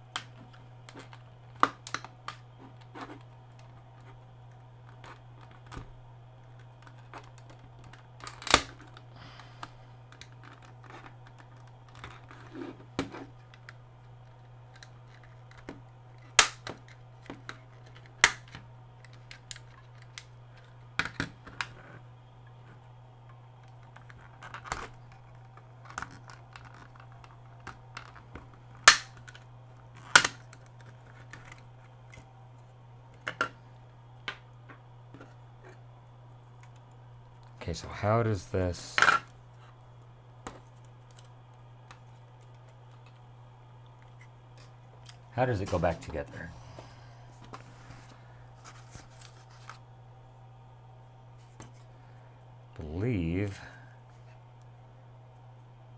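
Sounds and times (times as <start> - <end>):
plastic clips snapping: 14.7 - 20.3, 23.6 - 32.2.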